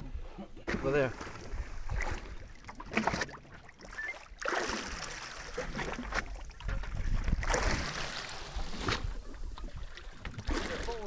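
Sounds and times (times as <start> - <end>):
water sloshing against hull: 0.0 - 11.0
wind buffeting microphone: 5.8 - 10.6.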